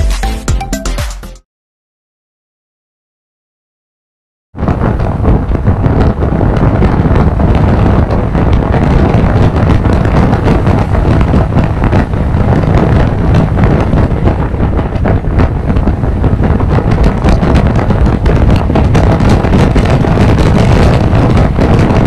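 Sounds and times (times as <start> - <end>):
wind buffeting on microphone: 4.6 - 22.0.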